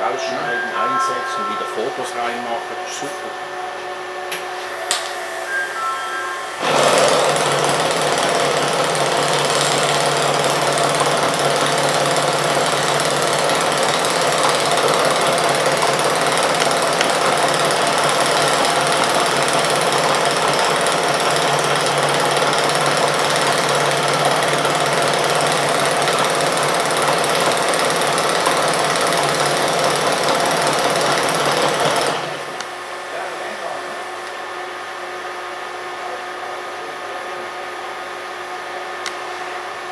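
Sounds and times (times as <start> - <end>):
welding arc burning harshly: 6.6 - 32.6.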